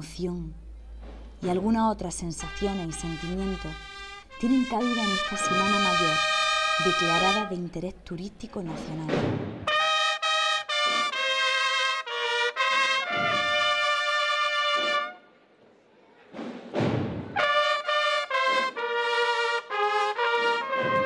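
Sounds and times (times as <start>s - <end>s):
trumpet playing slow melody: 2.4s - 7.7s, 9.7s - 15.2s, 17.4s - 21.0s
deep drum beats: 8.6s - 9.8s.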